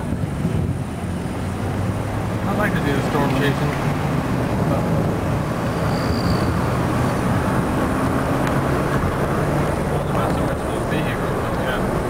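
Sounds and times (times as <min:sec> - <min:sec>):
car engine hum: 0:00.0 - 0:12.0
tyre and wind rumble: 0:00.0 - 0:12.0.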